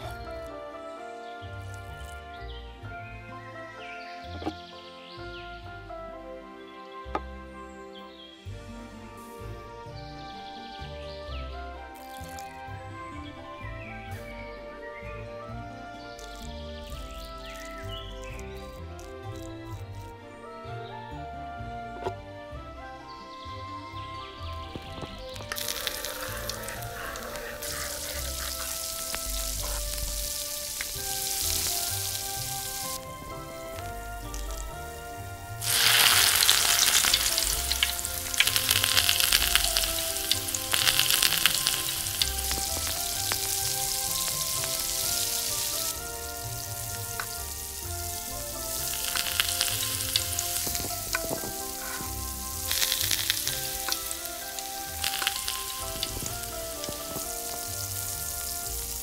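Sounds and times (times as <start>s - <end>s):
shrimp sizzling in butter: 11.9s - 12.6s, 16.1s - 20.1s, 24.6s - 59.0s.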